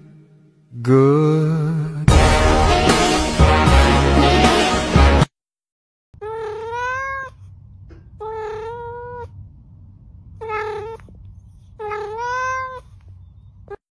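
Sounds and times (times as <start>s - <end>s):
cat meowing: 6.2s - 9.4s, 10.4s - 13.0s
low steady rumble: 6.2s - 13.8s.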